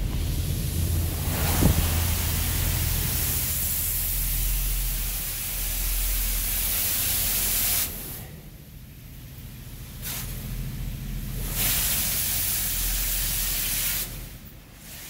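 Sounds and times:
low hum: 0:00.0 - 0:06.8
car wash spray jets hissing: 0:00.0 - 0:15.0.

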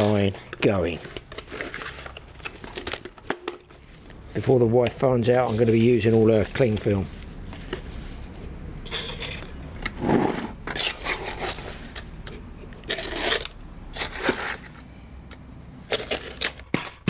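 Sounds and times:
trowel scraping wet cement: 0:00.0 - 0:02.0, 0:10.0 - 0:12.1, 0:12.8 - 0:14.8.

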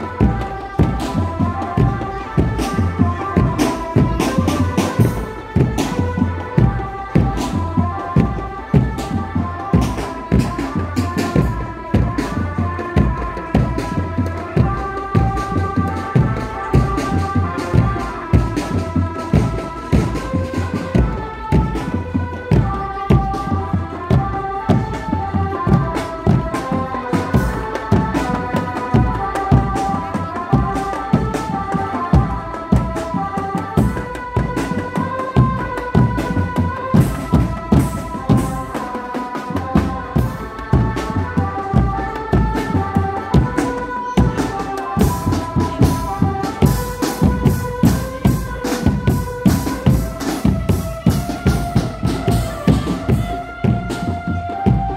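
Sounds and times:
drum band playing fast rhythm: 0:00.0 - 0:54.9.

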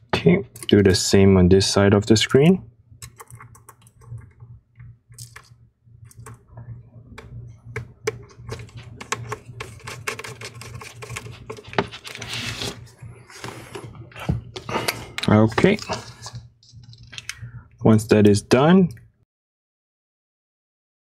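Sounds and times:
low steady hum: 0:00.0 - 0:19.2
laptop shuffling: 0:08.3 - 0:14.5.

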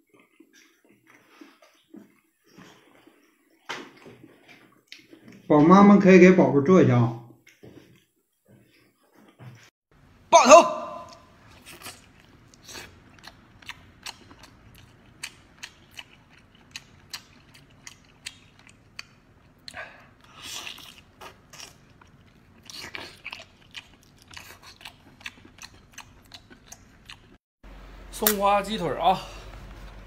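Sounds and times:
man chewing with wet smacks: 0:00.0 - 0:05.5, 0:11.0 - 0:27.4.

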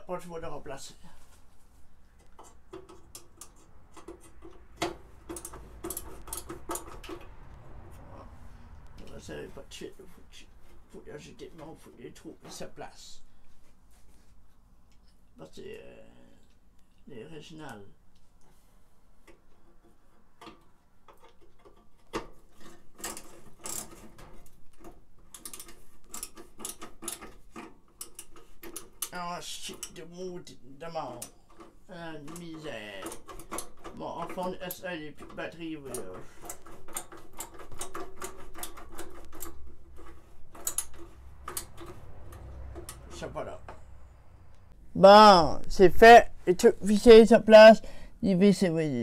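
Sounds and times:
screwdriver scraping metal: 0:02.3 - 0:07.3, 0:19.6 - 0:30.0, 0:31.1 - 0:43.9
screwdriver clicking on metal screws: 0:34.7 - 0:43.1.

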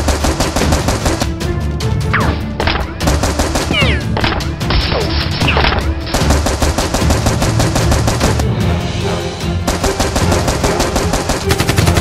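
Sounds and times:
rapid automatic gunfire effects: 0:00.0 - 0:01.3, 0:02.9 - 0:04.2, 0:06.1 - 0:08.4, 0:09.6 - 0:12.0.

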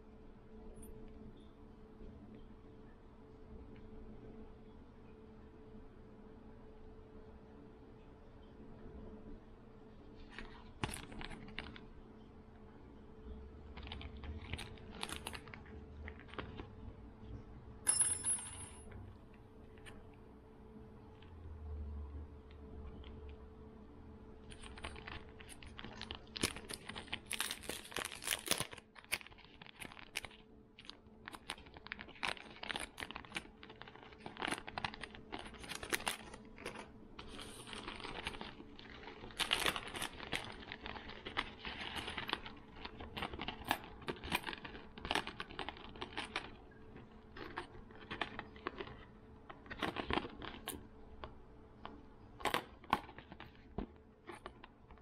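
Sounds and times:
faint steady hum: 0:00.0 - 0:55.0
plastic packaging crinkling: 0:10.2 - 0:12.0, 0:13.6 - 0:16.9, 0:24.4 - 0:55.0.

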